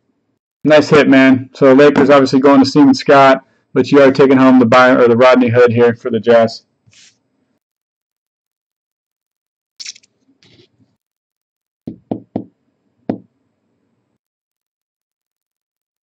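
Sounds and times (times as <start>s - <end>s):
short hissing sounds: 6.9s - 7.2s
sharp knocks: 11.9s - 12.5s, 13.1s - 13.3s.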